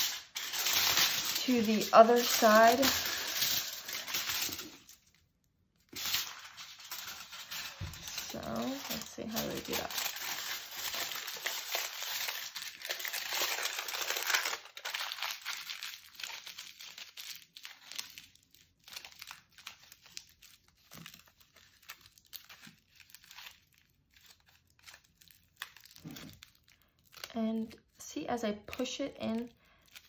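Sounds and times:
aluminium foil crinkling: 0.0 - 30.0.

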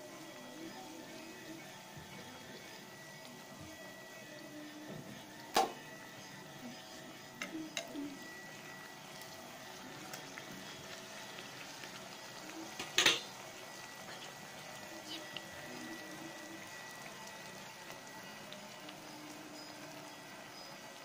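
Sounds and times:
deep-frying sizzle in hot oil: 0.0 - 21.0
metal utensils clinking on pan: 12.8 - 13.3.

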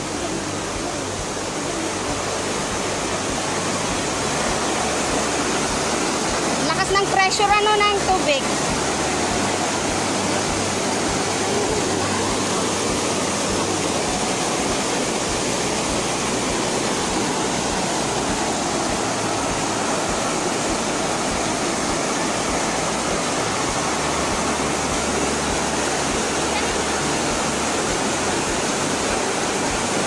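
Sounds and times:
rushing stream and waterfall: 0.0 - 30.0.

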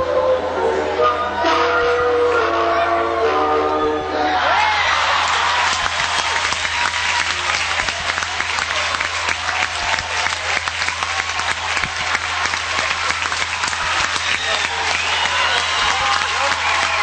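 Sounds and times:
audience applauding: 4.5 - 17.0.

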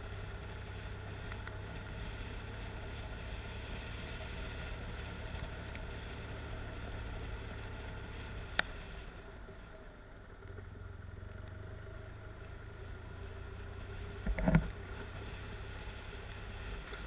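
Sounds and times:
motorcycle engine humming: 0.0 - 17.0
road and wind noise: 0.0 - 17.0
faint ticks: 1.2 - 2.0, 5.0 - 6.2, 7.0 - 8.8, 10.3 - 12.6, 16.2 - 17.0.

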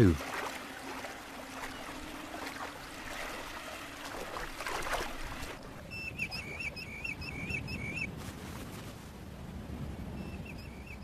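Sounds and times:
footsteps splashing through water: 0.0 - 5.6.

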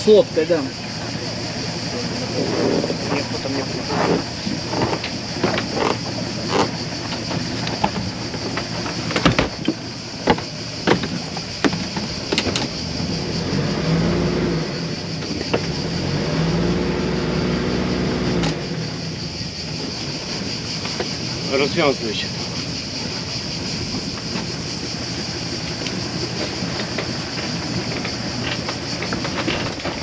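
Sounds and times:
sharp knocks and clicks: 3.9 - 12.8.

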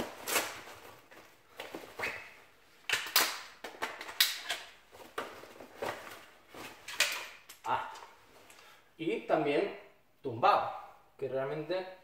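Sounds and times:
pouch rustling: 4.8 - 7.3.

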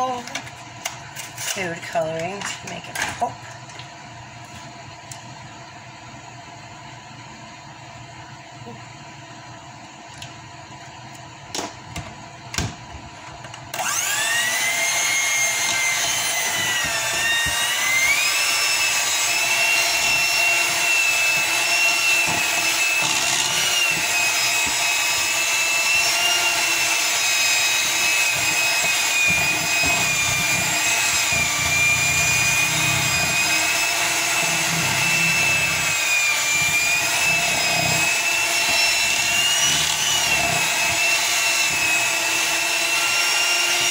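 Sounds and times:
electric hand mixer whine: 12.1 - 43.9.

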